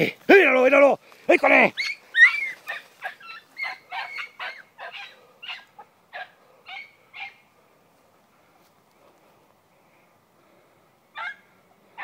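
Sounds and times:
dog yelping barks: 0:01.8 - 0:07.4, 0:11.2 - 0:11.4.

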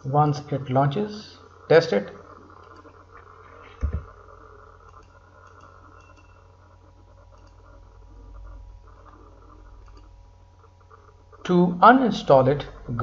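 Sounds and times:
steady low hum: 0:00.0 - 0:13.0
computer mouse and keyboard clicks: 0:02.5 - 0:04.1, 0:04.8 - 0:06.4, 0:07.1 - 0:11.1.

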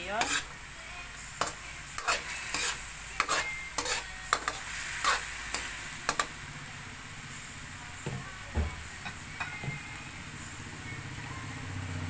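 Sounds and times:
metal spatula scraping wok: 0:00.0 - 0:00.6, 0:01.4 - 0:06.4
light sizzle: 0:00.0 - 0:12.0.

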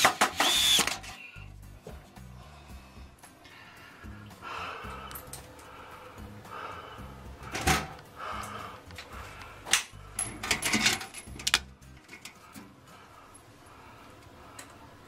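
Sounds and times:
clicks and rattles: 0:09.7 - 0:12.7.

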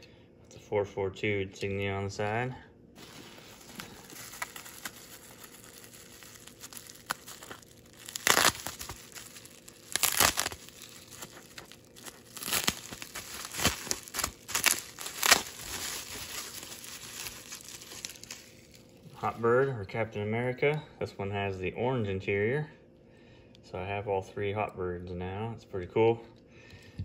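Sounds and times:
bubble wrap crinkling: 0:03.0 - 0:19.4.

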